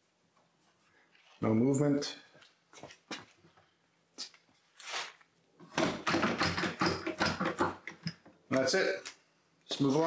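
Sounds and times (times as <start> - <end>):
soft rustle: 0.0 - 1.7, 2.3 - 5.4.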